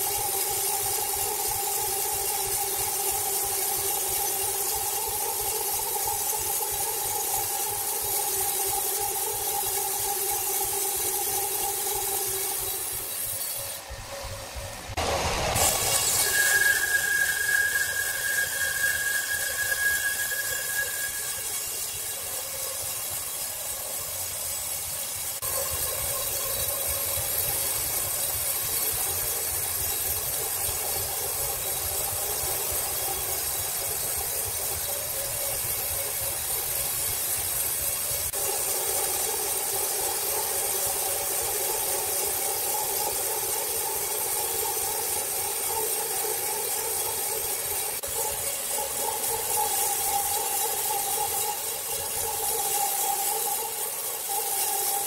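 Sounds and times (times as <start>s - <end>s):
band saw blade cutting wood: 14.9s - 25.5s.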